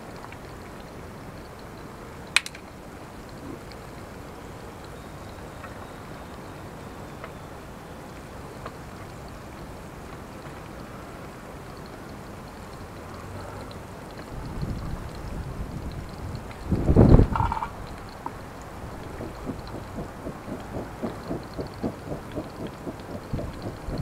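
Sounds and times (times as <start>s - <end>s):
faint crackles: 0.0s - 24.0s
sharp snap: 2.4s - 2.6s.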